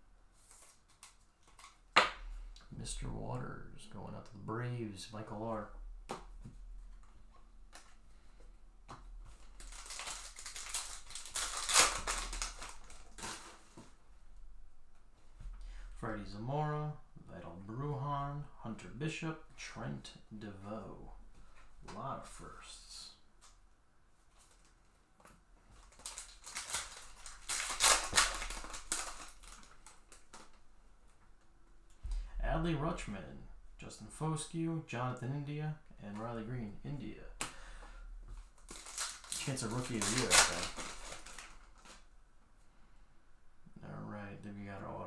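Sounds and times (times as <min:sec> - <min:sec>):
card pack tearing open: 0:09.4 - 0:13.8, 0:25.8 - 0:30.6, 0:38.6 - 0:42.0
foil wrapper crinkling: 0:09.4 - 0:13.9, 0:25.8 - 0:30.6, 0:38.4 - 0:42.1.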